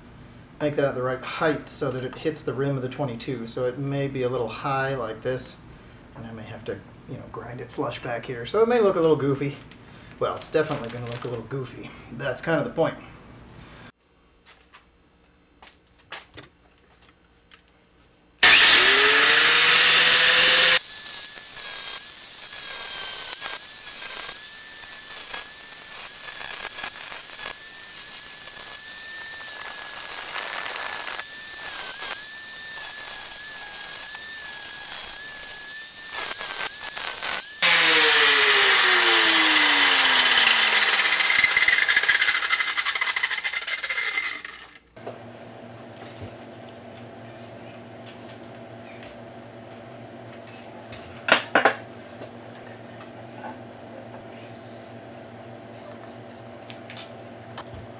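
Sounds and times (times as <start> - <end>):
angle grinder grinding steel: 18.4 - 44.9.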